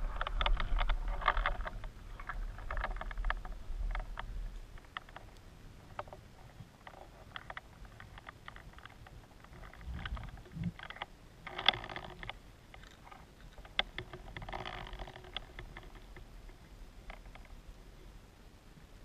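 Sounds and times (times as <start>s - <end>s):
sharp underwater clicks: 0.0s - 17.6s.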